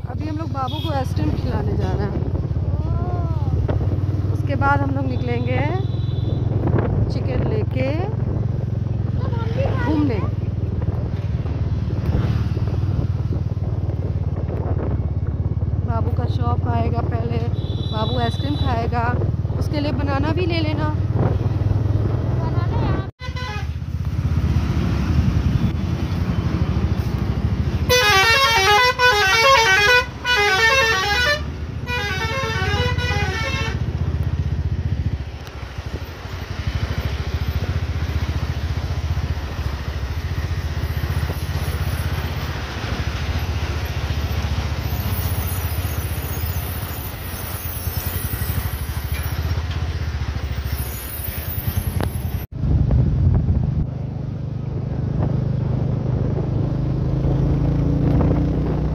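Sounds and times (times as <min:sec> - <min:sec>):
motorcycle engine running: 0:00.0 - 0:27.9, 0:31.5 - 0:58.9
highway traffic noise: 0:00.0 - 0:58.9
warbling vehicle horn: 0:23.2 - 0:23.8, 0:27.9 - 0:33.9.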